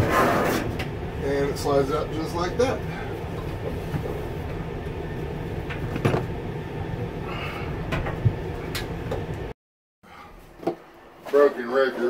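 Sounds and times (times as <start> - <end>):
low rumble: 0.0 - 9.5.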